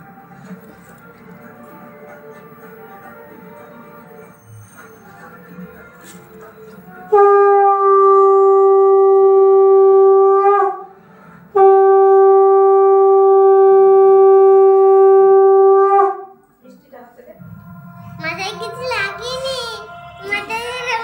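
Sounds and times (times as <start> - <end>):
conch shell blasts: 7.1 - 10.9, 11.5 - 16.3.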